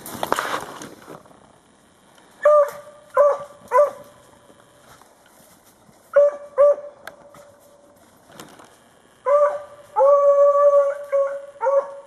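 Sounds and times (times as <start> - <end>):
dog baying and howling: 2.4 - 4.0, 6.1 - 7.0, 9.2 - 12.0.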